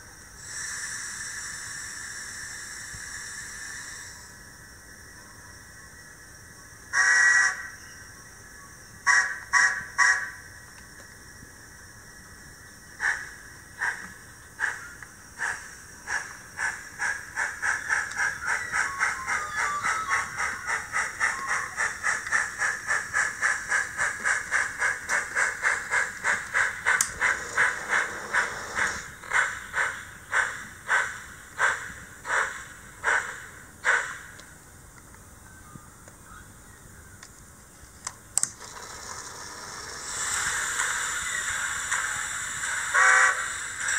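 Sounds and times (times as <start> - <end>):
model locomotive steam chuffs: 0.0 - 4.6, 6.9 - 7.7, 9.0 - 10.4, 13.0 - 34.4, 38.5 - 43.9.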